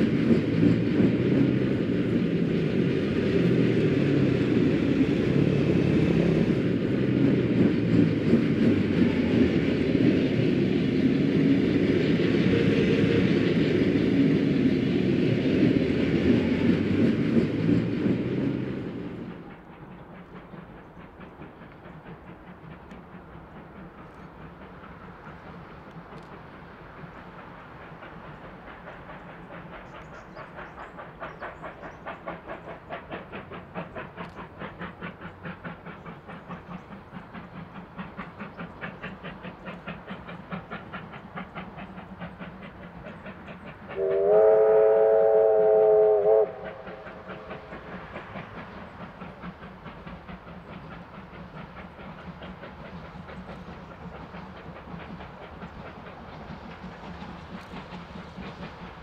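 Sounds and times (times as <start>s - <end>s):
steam locomotive exhaust beats: 0.0s - 59.0s
chord steam whistle blast: 12.3s - 13.7s, 44.0s - 47.5s.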